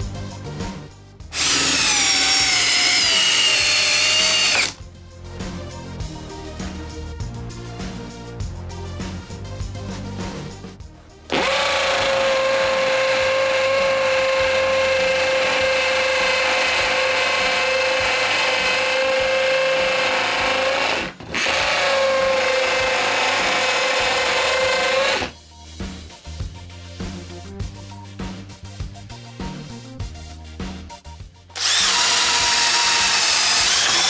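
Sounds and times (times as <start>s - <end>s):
hammer drill boring into concrete: 1.3s - 4.8s, 11.3s - 25.4s, 31.6s - 34.0s.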